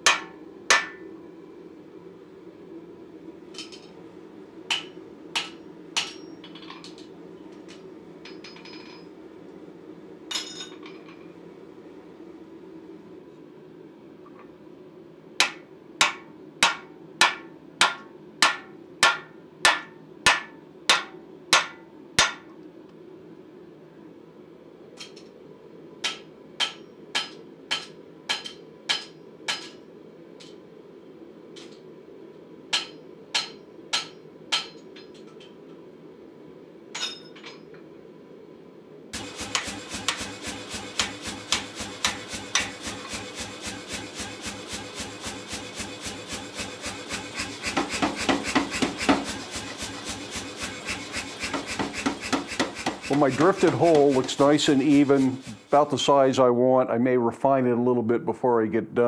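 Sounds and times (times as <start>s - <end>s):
hammer ringing on hot steel: 0.0s - 1.0s, 4.7s - 6.4s, 15.4s - 22.5s, 32.7s - 34.8s, 39.2s - 45.6s.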